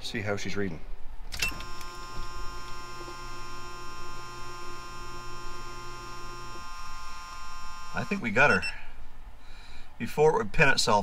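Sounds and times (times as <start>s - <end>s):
faint high electrical whine: 0.0s - 11.0s
electric fuel pump humming: 1.3s - 9.0s.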